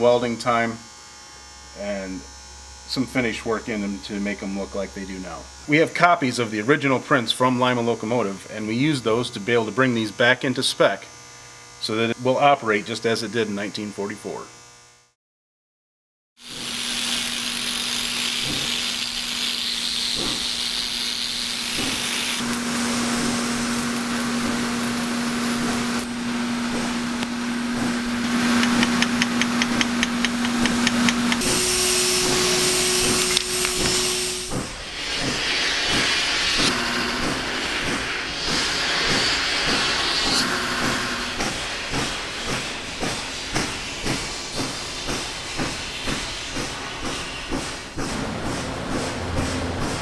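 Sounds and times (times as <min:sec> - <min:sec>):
low motor hum: 0:16.6 - 0:43.7, 0:48.0 - 0:50.0
steady hissing noise: 0:16.7 - 0:48.0.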